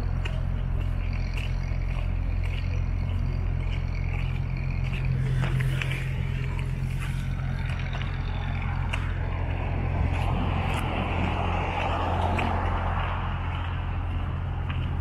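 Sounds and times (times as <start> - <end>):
low rumble of city traffic: 0.0 - 15.0
car passing close by: 8.3 - 14.7.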